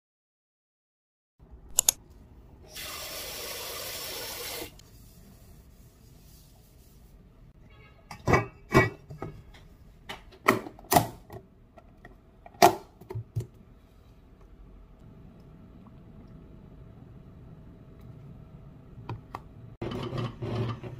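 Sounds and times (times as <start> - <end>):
cookware knocking and clunking: 8.1 - 11.2.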